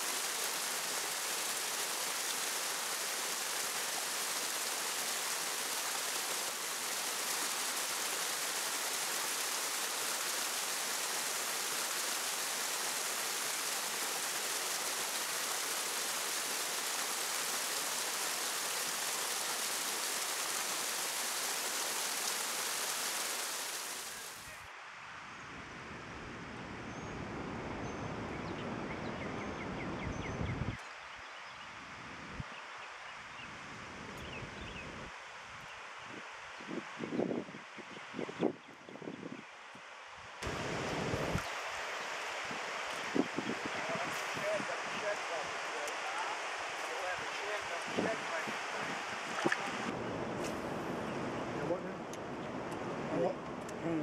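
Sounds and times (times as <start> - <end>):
water rushing over spillway: 0.0 - 24.8, 40.4 - 50.8
wind on microphone: 27.2 - 30.8, 36.1 - 39.4, 40.4 - 41.6, 42.4 - 45.0.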